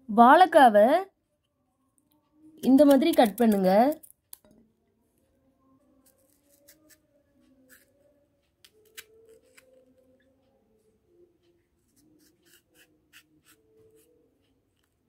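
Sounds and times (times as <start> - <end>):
knife cutting plantain skin: 6.1 - 7.0, 8.6 - 9.8, 12.0 - 14.1.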